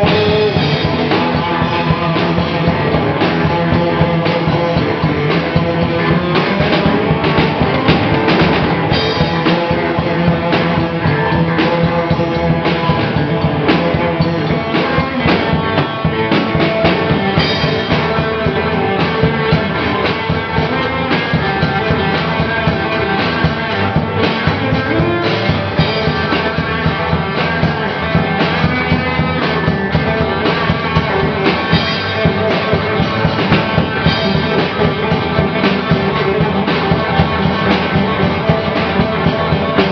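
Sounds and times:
live punk rock band: 0:00.0 - 0:39.9.

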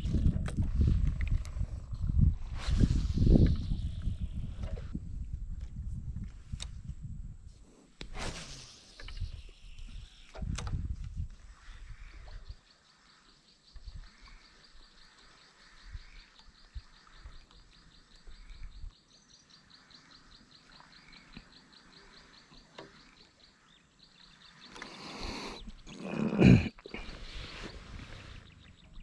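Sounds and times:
soft bird calls: 0:08.2 - 0:29.0.

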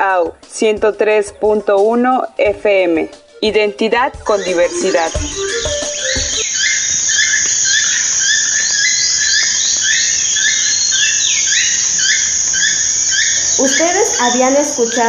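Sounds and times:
toucan croaking calls: 0:03.4 - 0:15.0
crickets droning: 0:04.2 - 0:15.0.

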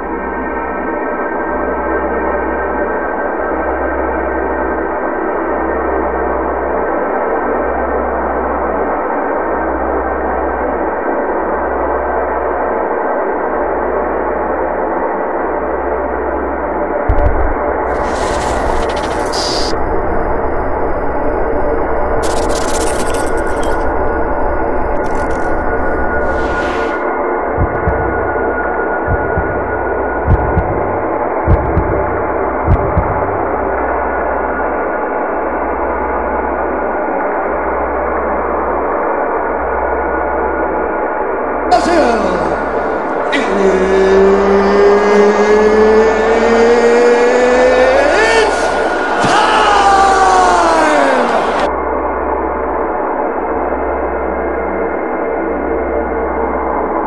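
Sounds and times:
low ambient drone: 0:00.0 - 0:57.0
low hum: 0:16.9 - 0:35.8
sudden low thump: 0:17.1 - 0:18.0, 0:27.6 - 0:33.7
drone of ringing tones: 0:17.1 - 0:34.5.

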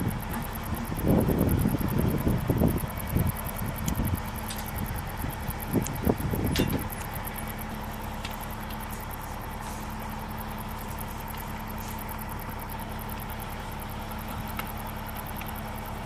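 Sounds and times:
engine idling: 0:00.0 - 0:16.0
metallic clunks: 0:06.5 - 0:07.1.

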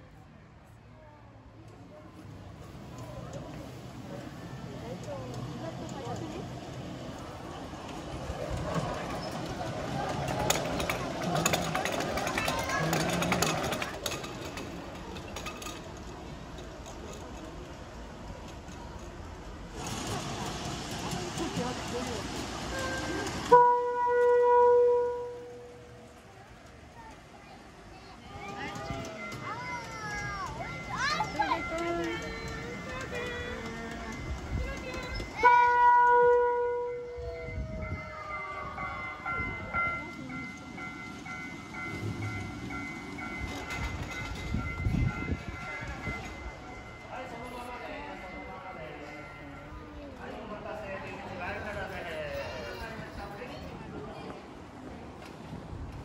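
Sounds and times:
miniature train rumbling: 0:00.0 - 0:56.0
wheels clicking on track: 0:01.6 - 0:56.0
horn-like tone: 0:23.5 - 0:25.7.

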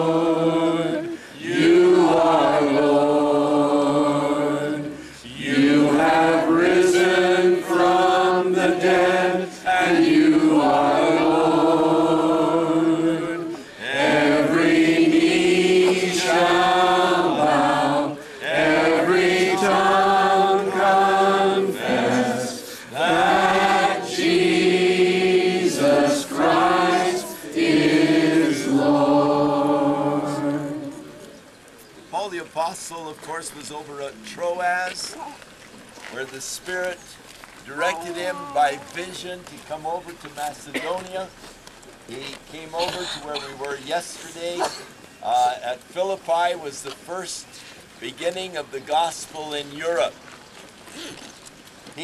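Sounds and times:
crowd singing worship chorus: 0:00.0 - 0:31.6.

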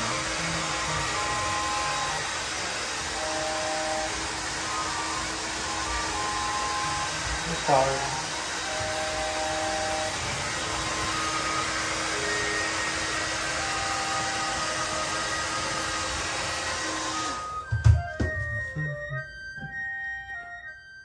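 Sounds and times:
hair dryer blowing: 0:00.0 - 0:18.8
soft background music: 0:00.0 - 0:21.0.

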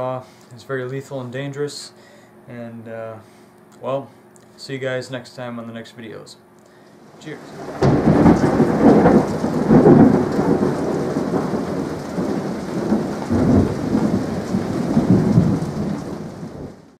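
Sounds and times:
steady rain: 0:07.0 - 0:17.0
thunder rumbling: 0:07.0 - 0:17.0.

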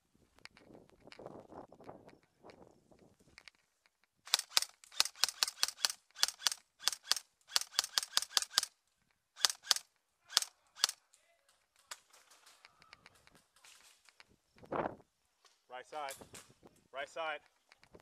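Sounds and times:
airsoft rifle shots: 0:04.3 - 0:08.7, 0:09.4 - 0:11.0.

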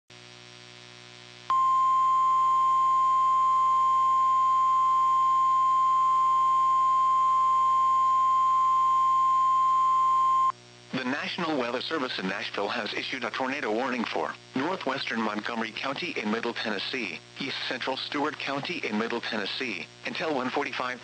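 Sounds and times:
faint radio hiss and hum: 0:00.1 - 0:21.0
loud steady alarm beep: 0:01.5 - 0:10.5.

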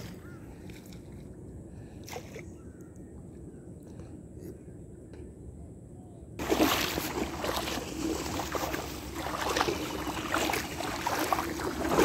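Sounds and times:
water splashing around boat: 0:06.4 - 0:12.0.

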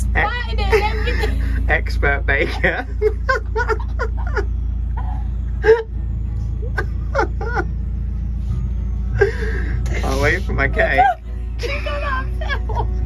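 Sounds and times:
steady low hum: 0:00.0 - 0:13.0
woman laughing: 0:00.6 - 0:01.7, 0:02.4 - 0:04.5, 0:06.8 - 0:07.7, 0:11.0 - 0:13.0.

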